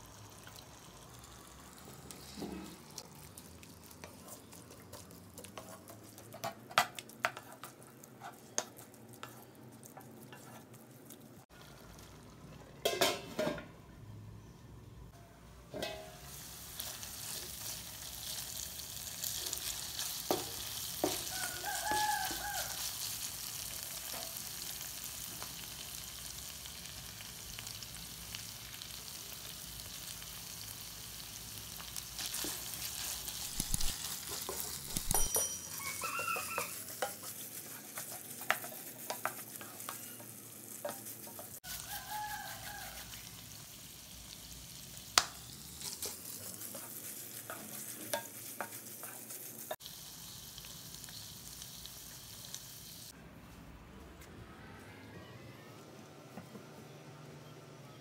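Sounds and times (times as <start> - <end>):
meat sizzling in oil: 0.0 - 6.3, 16.1 - 53.2
wooden spatula scraping pan: 4.0 - 10.8, 36.0 - 43.2, 45.8 - 49.8.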